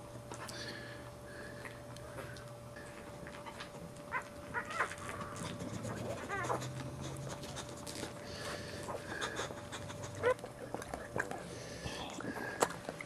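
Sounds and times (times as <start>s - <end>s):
dog whining: 3.4s - 7.7s, 8.9s - 10.5s
dog panting: 5.1s - 11.5s.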